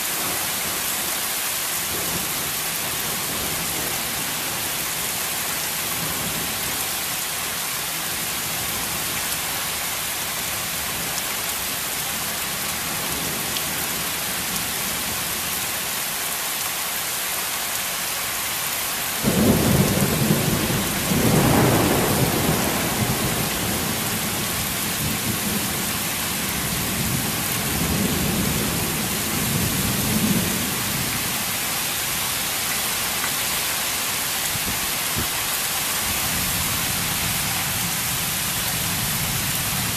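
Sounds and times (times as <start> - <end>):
heavy rain falling: 0.0 - 39.9
thunder clap and rumbles: 19.3 - 31.1.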